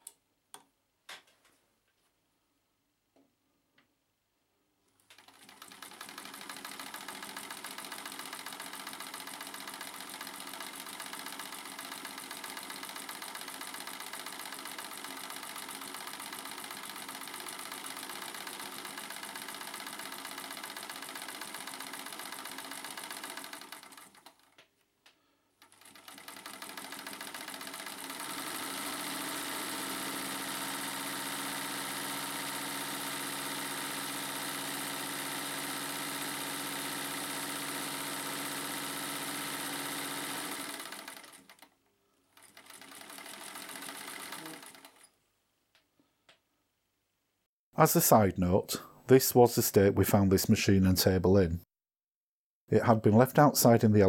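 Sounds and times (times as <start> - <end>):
sewing machine stitching: 5.0 - 24.6, 25.6 - 45.2.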